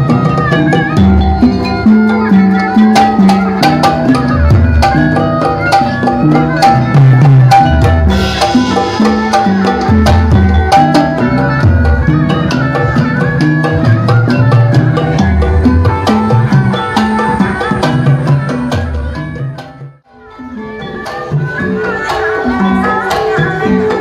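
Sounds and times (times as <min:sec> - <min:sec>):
drum strokes sliding in pitch: 0:00.0 - 0:24.0.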